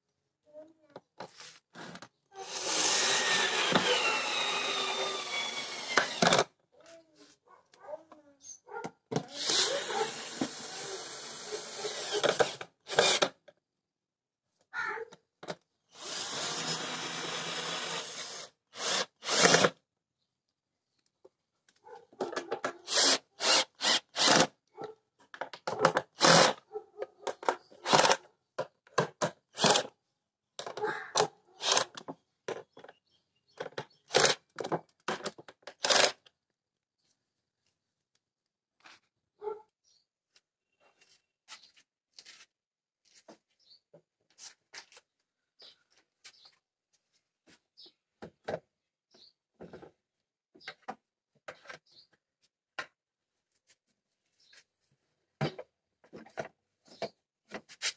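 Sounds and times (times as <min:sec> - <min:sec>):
cordless drill spinning screws: 0:01.8 - 0:06.5, 0:09.4 - 0:13.4, 0:15.9 - 0:19.8, 0:22.8 - 0:24.5, 0:26.2 - 0:26.6, 0:27.8 - 0:28.2, 0:29.5 - 0:29.9, 0:31.6 - 0:32.0, 0:34.1 - 0:34.5, 0:35.7 - 0:36.3.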